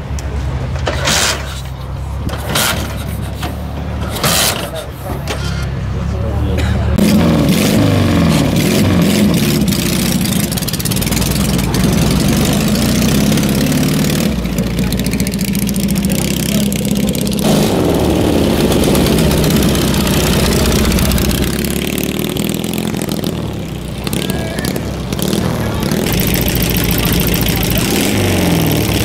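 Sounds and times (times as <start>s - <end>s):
motorcycle engine running: 7.0s - 29.0s.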